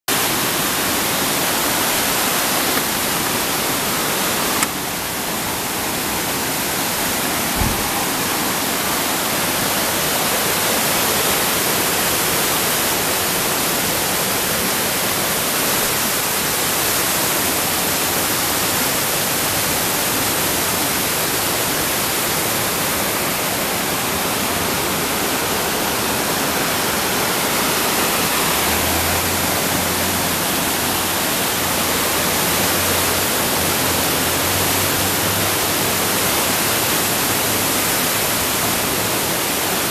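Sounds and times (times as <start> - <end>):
waterfall rushing: 0.1 - 39.9
brief knocks: 7.6 - 8.1.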